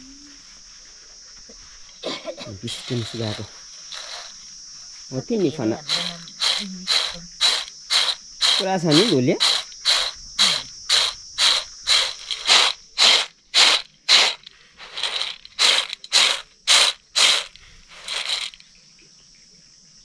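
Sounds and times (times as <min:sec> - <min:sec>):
insects buzzing: 0:00.0 - 0:20.0
dried kernels rattling in steel plate: 0:02.7 - 0:04.4, 0:05.8 - 0:18.6.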